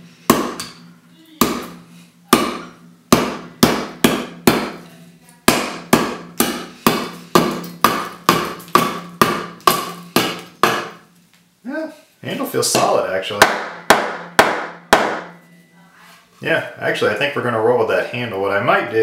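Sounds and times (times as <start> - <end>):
cleaver chopping wood: 0.3 - 0.7, 1.4 - 4.8, 5.5 - 11.0, 12.8 - 15.3.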